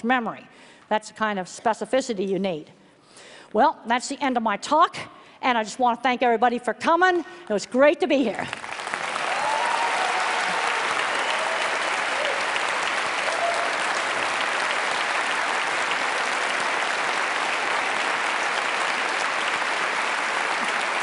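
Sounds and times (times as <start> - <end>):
audience applauding: 8.5 - 21.0.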